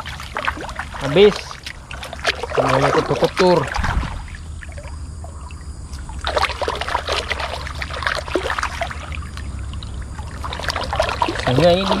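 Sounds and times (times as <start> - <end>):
water splashing in a creek: 0.0 - 12.0.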